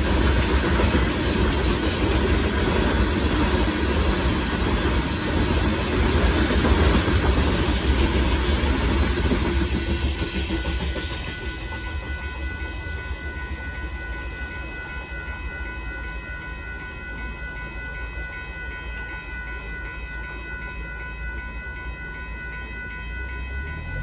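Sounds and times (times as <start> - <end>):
railroad crossing bell ringing: 0.0 - 24.0.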